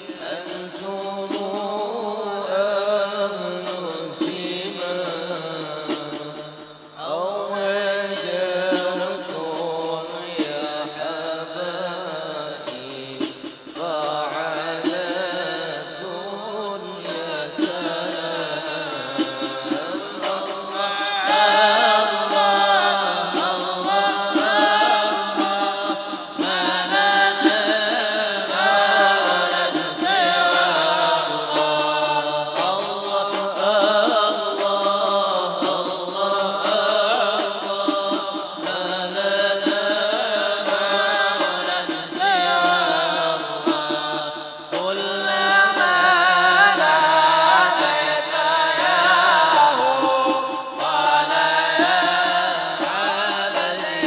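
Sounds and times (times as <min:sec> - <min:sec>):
frame drums beating: 0:00.0 - 0:07.3, 0:08.1 - 0:16.2, 0:16.8 - 0:54.0
men chanting in unison: 0:00.0 - 0:54.0.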